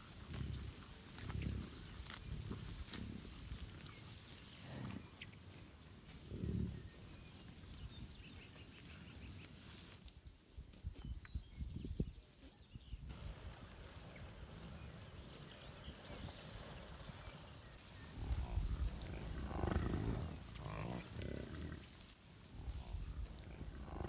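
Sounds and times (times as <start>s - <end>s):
bison grunting: 0.0s - 3.6s, 6.1s - 7.0s, 18.0s - 21.9s, 22.6s - 24.0s
rustling and clicks in grass: 0.0s - 24.0s.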